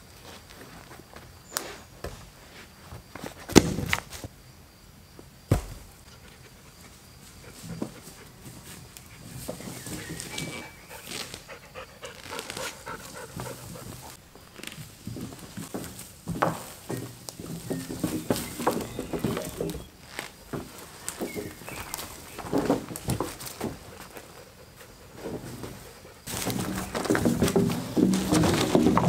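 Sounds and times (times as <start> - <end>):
dog panting: 10.8 - 14.2.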